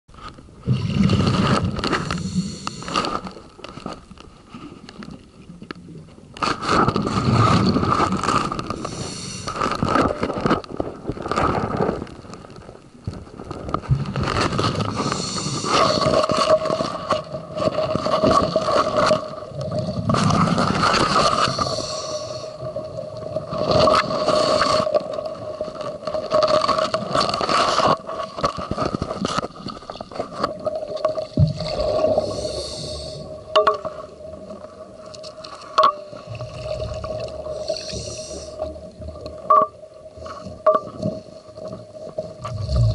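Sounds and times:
exhaled bubbles rumbling: 0.4s - 3.8s, 5.0s - 27.3s, 28.4s - 35.5s, 36.1s - 42.9s
diver breathing through regulator: 2.1s - 3.3s, 8.8s - 9.8s, 14.9s - 16.2s, 21.4s - 22.6s, 32.0s - 33.4s, 37.4s - 38.8s.

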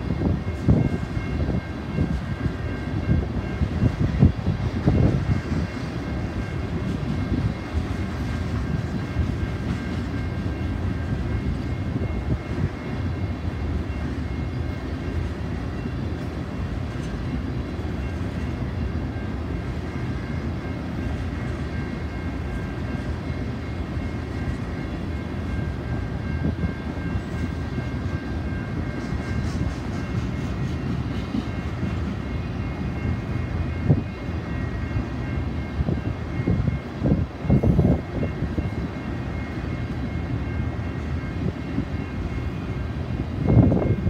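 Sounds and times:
train wheels rumbling on rail: 0.0s - 44.0s.

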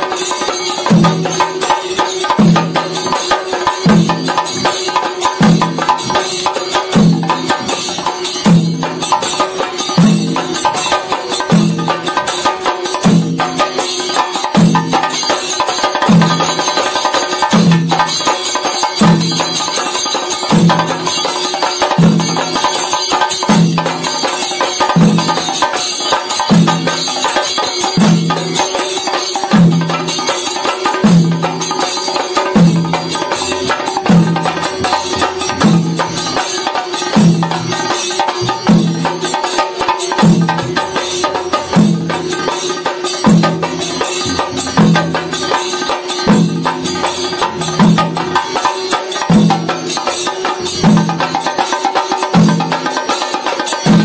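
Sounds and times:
drums beaten with sticks: 0.0s - 54.0s
heavy low drum beat: 32.5s - 36.4s, 40.2s - 42.5s, 43.2s - 45.6s.

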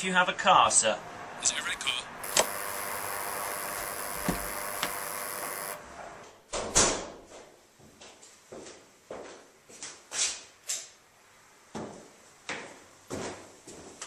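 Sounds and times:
intercom electronic buzz: 2.2s - 5.8s
knocks and thumps: 4.2s - 5.0s.

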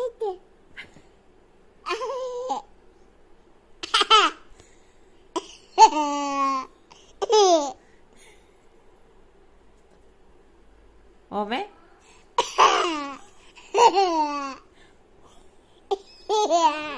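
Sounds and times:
toddler laughing: 1.8s - 2.7s, 5.4s - 7.8s, 12.4s - 14.6s, 15.9s - 16.9s.

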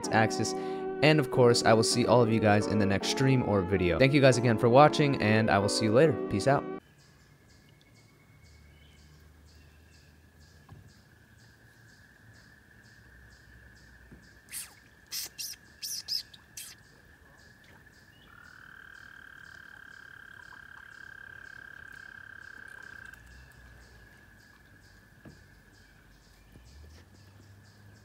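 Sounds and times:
distant chorus of trills: 6.8s - 28.0s
frog trilling: 14.4s - 25.0s
sharp chirps: 14.5s - 16.8s.

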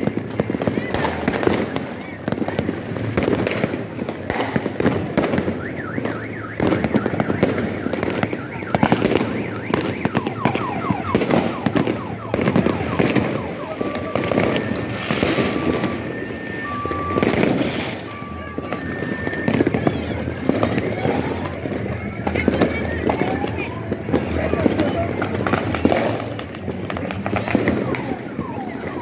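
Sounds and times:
firecrackers banging and crackling: 0.0s - 29.0s
car alarm: 4.6s - 19.9s, 20.5s - 26.5s, 27.3s - 29.0s.

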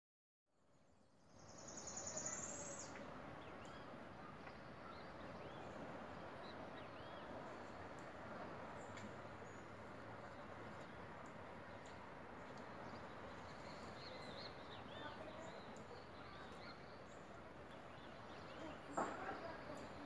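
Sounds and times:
faint outdoor background noise: 0.5s - 20.0s.

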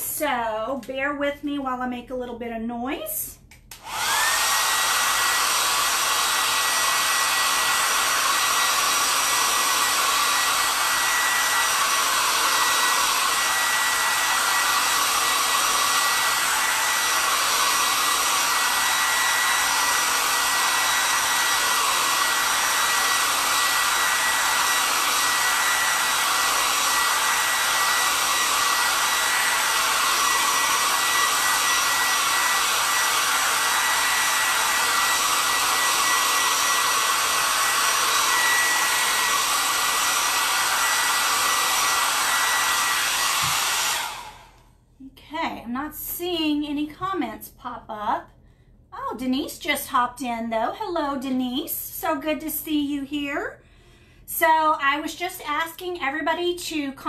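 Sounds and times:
hair dryer blowing: 3.7s - 44.8s.

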